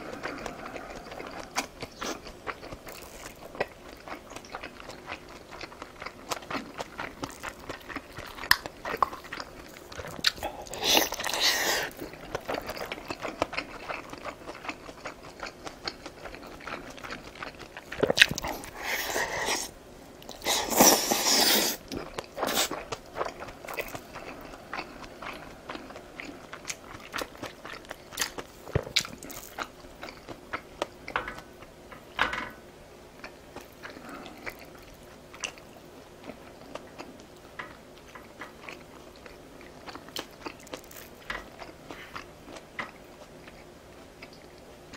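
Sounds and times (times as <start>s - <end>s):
loud noisy eating bursts: 10.3s - 12.2s, 18.5s - 19.7s, 20.4s - 22.8s
wet chewing and biting: 20.2s - 30.9s, 38.1s - 44.6s.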